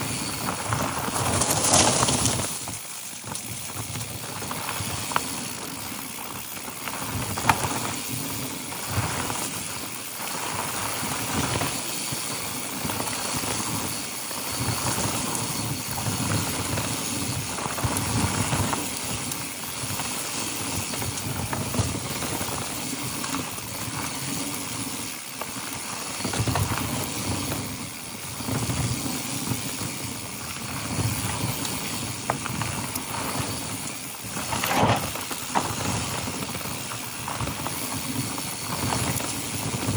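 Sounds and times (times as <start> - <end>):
tyres on dirt and gravel: 0.0 - 4.0, 31.8 - 39.6
bike rattling over bumps: 0.0 - 39.9.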